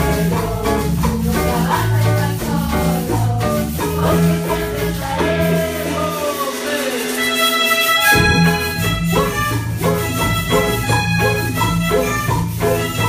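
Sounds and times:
students singing: 0:00.0 - 0:07.2
bass guitar: 0:00.0 - 0:13.0
drum kit: 0:00.0 - 0:13.0
melodicas holding notes: 0:00.2 - 0:13.0.

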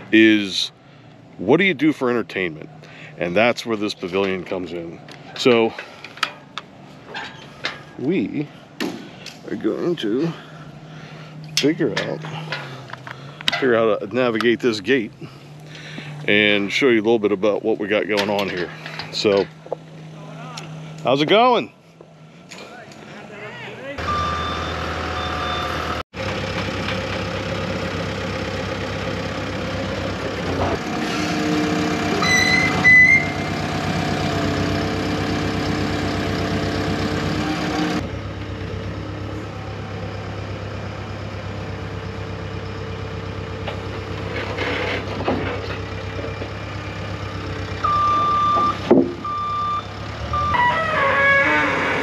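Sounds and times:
heavy vehicle engine running: 0:00.0 - 0:52.0
reversing alarm beeping: 0:24.0 - 0:26.0, 0:32.2 - 0:33.5, 0:47.8 - 0:51.0.

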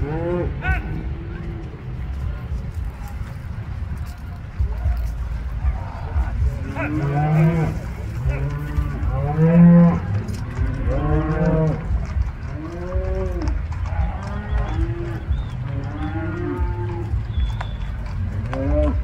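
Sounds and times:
cows mooing: 0:00.0 - 0:01.4, 0:06.6 - 0:17.5, 0:18.4 - 0:19.0
low rumble: 0:00.0 - 0:19.0.

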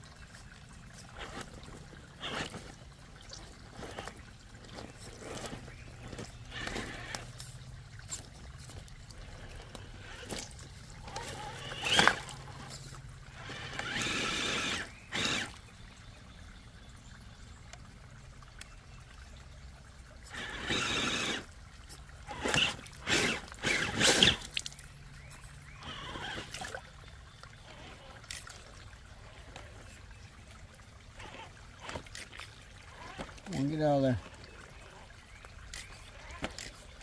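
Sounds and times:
creek water trickling over rocks: 0:00.0 - 0:37.0
remote control car motor: 0:01.1 - 0:15.7, 0:20.2 - 0:24.6, 0:25.3 - 0:26.8, 0:27.6 - 0:30.0, 0:31.1 - 0:37.0.

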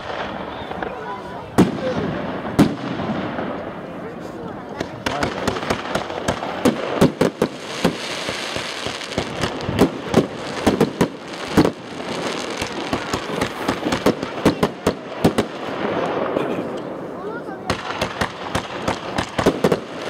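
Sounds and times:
continuous noisy din: 0:00.0 - 0:20.0
firework shells bursting: 0:04.7 - 0:16.3.

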